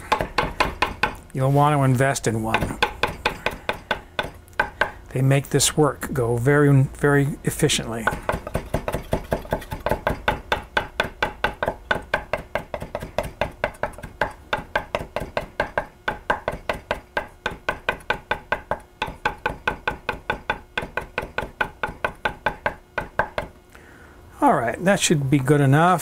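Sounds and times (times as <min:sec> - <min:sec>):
knife chopping on wooden board: 0:00.0 - 0:01.3, 0:02.5 - 0:05.0, 0:08.0 - 0:23.5.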